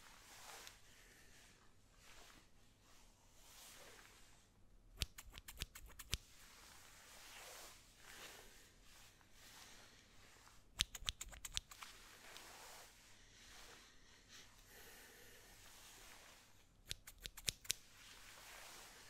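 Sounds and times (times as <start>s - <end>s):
scissors snipping: 5.0s - 6.2s, 10.8s - 11.9s, 16.8s - 17.8s.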